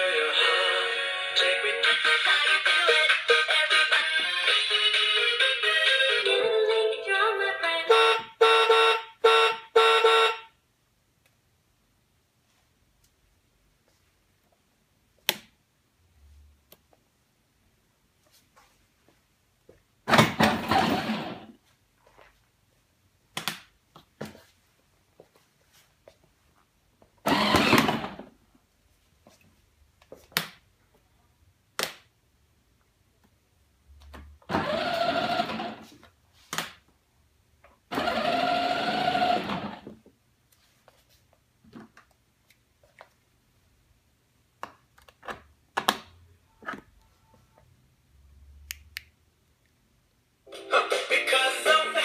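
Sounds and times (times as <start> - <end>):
electric toy motors whirring: 27.3 - 28.2, 34.5 - 35.8, 37.9 - 39.8.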